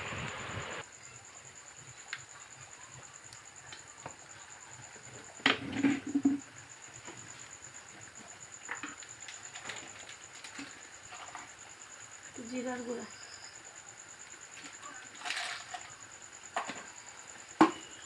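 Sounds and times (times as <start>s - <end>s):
high insect trill: 0.0s - 18.0s.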